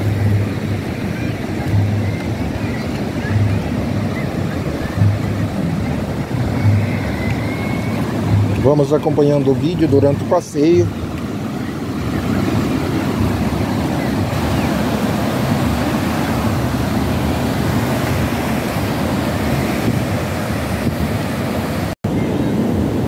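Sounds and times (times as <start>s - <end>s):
ocean surf breaking: 0.0s - 23.0s
wind rumbling on microphone: 0.0s - 23.0s.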